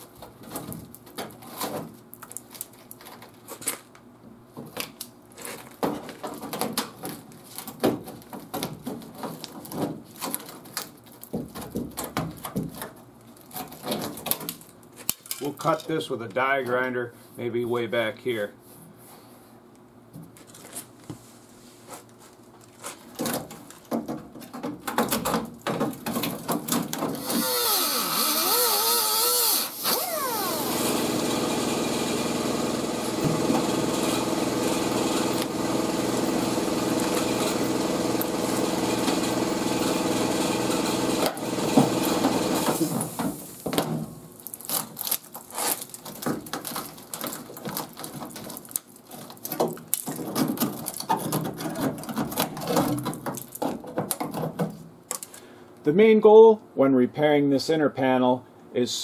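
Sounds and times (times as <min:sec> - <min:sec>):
die grinder cutting sheet metal: 0:27.2 - 0:43.0.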